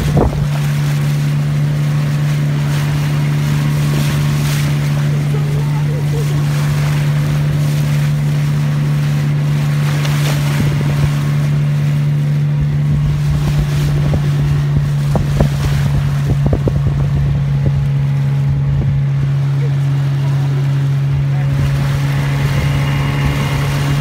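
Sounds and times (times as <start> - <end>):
wind noise: 0.0 - 0.8, 10.4 - 11.4, 12.5 - 19.3, 21.4 - 24.0
motorboat engine droning: 0.0 - 24.0
water noise: 0.0 - 24.0.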